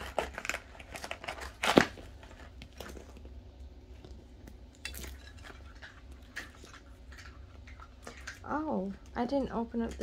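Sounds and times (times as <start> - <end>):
plastic rustling: 0.0 - 4.1.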